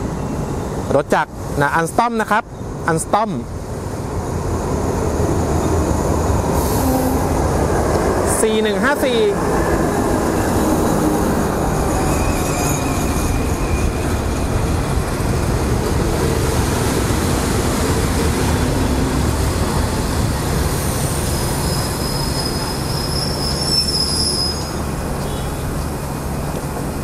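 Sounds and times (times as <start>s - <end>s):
train carriages rumbling on rails: 4.3s - 27.0s
wheel and brake squeal: 11.9s - 14.1s, 21.4s - 25.5s.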